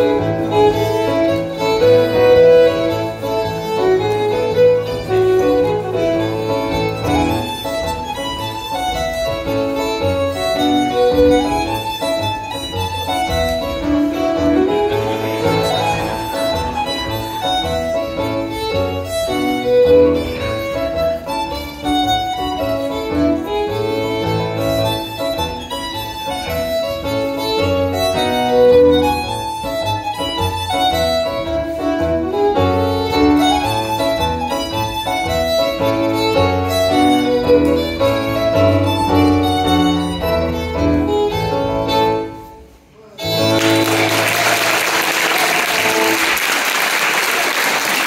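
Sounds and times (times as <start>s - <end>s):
fiddle dance music: 0.0s - 48.0s
audience applause: 43.5s - 48.0s.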